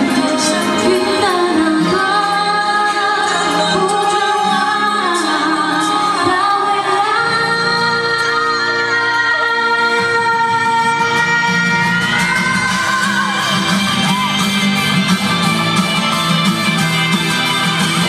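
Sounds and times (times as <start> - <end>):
woman singing into a microphone: 0.0 - 13.6
backing music: 0.0 - 18.0.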